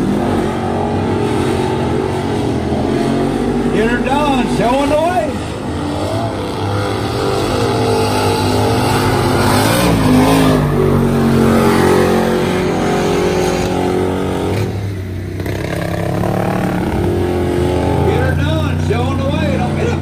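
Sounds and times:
racing car engine at high revs: 0.0s - 20.0s.

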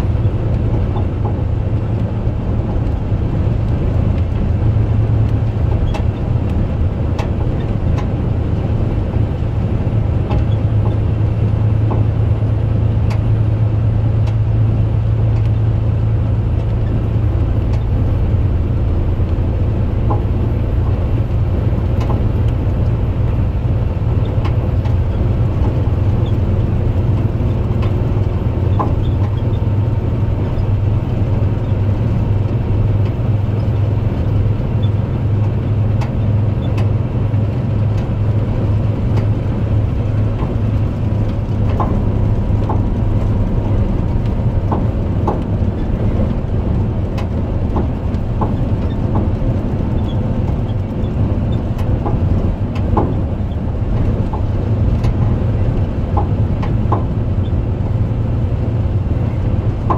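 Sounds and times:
road noise: 0.0s - 59.9s
truck engine hum: 0.0s - 59.9s
light ticks: 15.4s - 15.6s.

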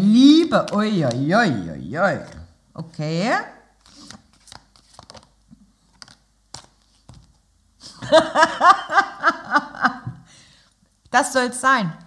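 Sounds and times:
soft clicks of cards handled: 3.8s - 7.4s
woman laughing: 8.0s - 10.2s.

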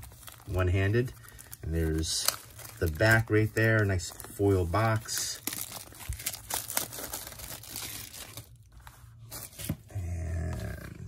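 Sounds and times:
plastic shrink wrap crinkling: 0.0s - 9.7s.

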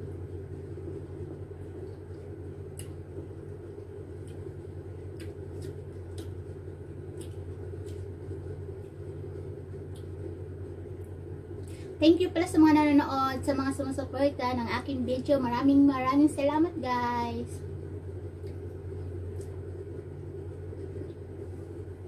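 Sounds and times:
steady low hum: 0.0s - 22.0s
faint clicks and smacks of eating: 0.4s - 11.9s, 17.6s - 22.0s.

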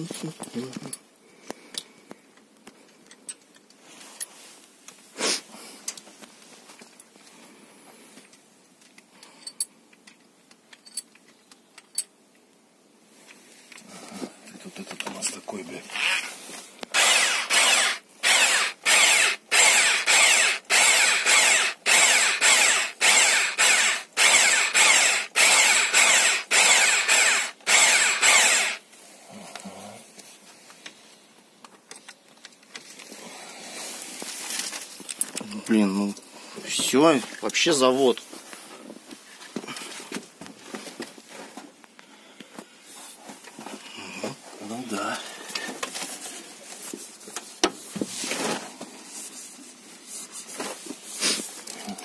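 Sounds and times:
electric drill spinning honing head: 15.9s - 16.3s, 16.9s - 28.8s.

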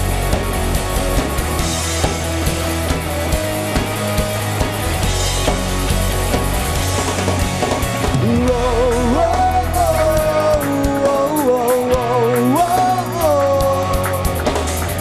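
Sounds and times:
pop-rock band playing: 0.0s - 15.0s.

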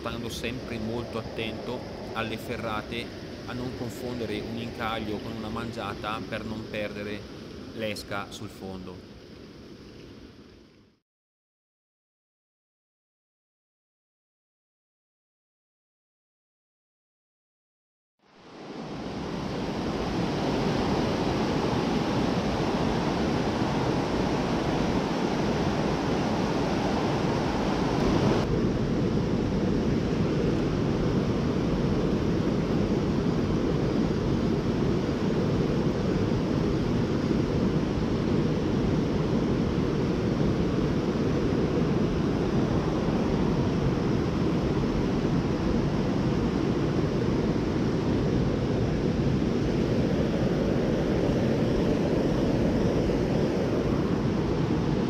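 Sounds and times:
mountain stream rushing: 18.4s - 28.6s.

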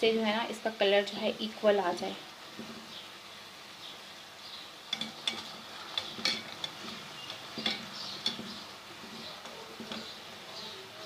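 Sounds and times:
food sizzling in hot oil: 0.0s - 11.0s
spoon knocking against pan: 4.9s - 10.2s.

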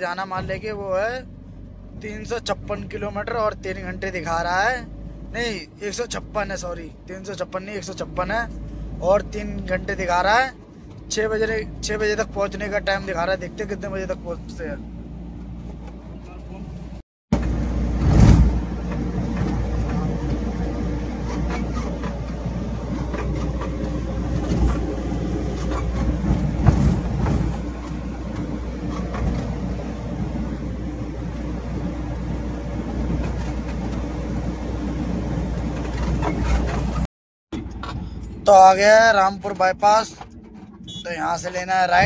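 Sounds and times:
car engine drone: 0.0s - 42.0s
road rumble: 0.0s - 42.0s
loud thumps: 17.3s - 20.0s, 25.6s - 28.4s.

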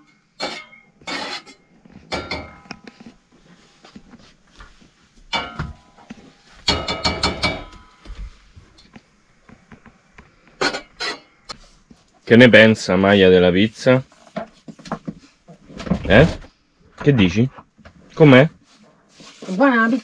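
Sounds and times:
mugs and utensils clattering: 0.4s - 3.0s, 5.3s - 8.1s, 10.6s - 11.4s.

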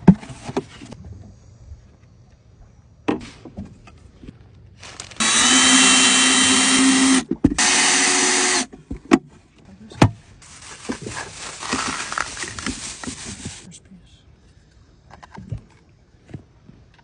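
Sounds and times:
cordless drill cutting plastic: 5.1s - 8.7s.

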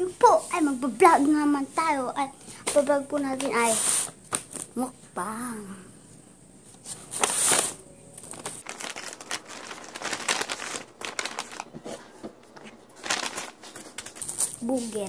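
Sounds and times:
paper bag rustling and crinkling: 6.8s - 15.0s.

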